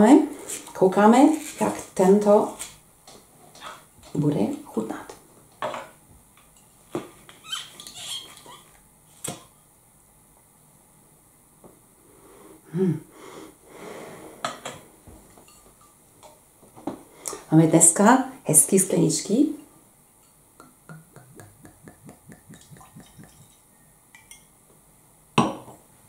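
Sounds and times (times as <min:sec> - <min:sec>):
cork squeaking in bottle neck: 0:07.4 - 0:08.7
cork popping: 0:20.6 - 0:23.6.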